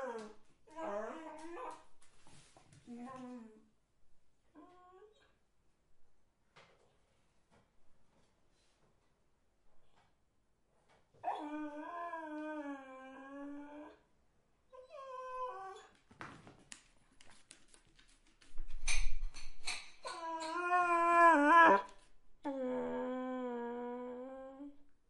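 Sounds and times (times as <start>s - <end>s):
dog whining: 11.2s - 14.0s, 14.8s - 15.9s, 20.0s - 24.0s.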